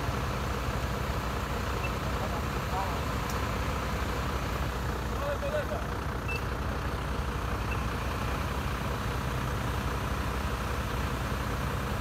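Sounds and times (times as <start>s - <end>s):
truck engine idling: 0.0s - 12.0s.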